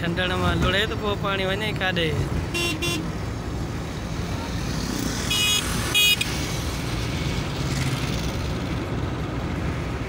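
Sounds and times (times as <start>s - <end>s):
car road and engine noise: 0.0s - 10.0s
high-pitched car horn toots: 2.5s - 3.1s.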